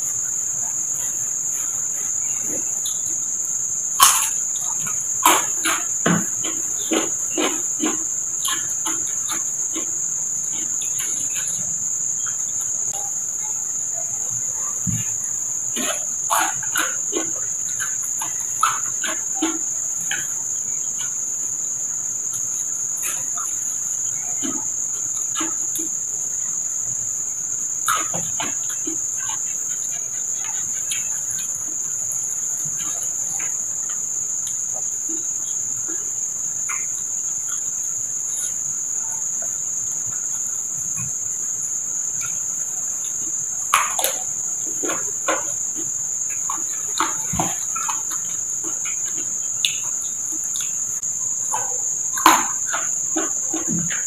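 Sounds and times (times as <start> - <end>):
crickets chirring: 0.0 - 54.0
crunchy bite: 3.9 - 9.9
chewing clicks and smacks: 4.0 - 10.0, 43.7 - 50.7.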